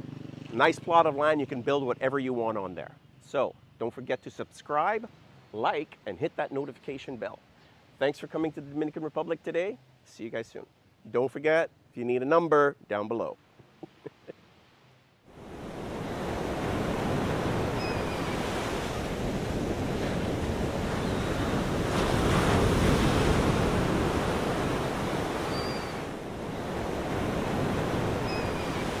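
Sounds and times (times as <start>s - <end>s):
ocean waves on a beach: 13.5s - 29.0s.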